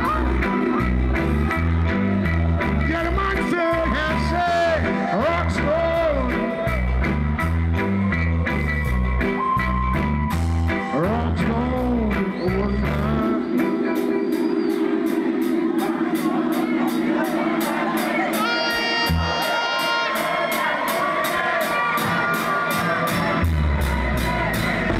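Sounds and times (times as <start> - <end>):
heavy bass line: 0.0 - 19.6, 22.8 - 24.9
live reggae band: 0.0 - 24.9
steady drum beat: 0.0 - 24.9
man singing: 2.9 - 6.6, 10.8 - 14.0.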